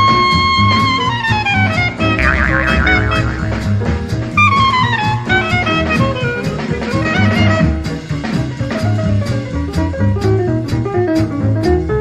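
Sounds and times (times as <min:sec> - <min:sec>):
instrumental music with beat: 0:02.2 - 0:03.9.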